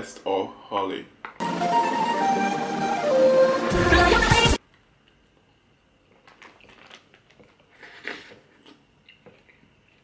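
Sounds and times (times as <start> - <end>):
person chewing cereal: 6.0 - 10.0
wet mouth clicks and smacks: 6.2 - 10.0.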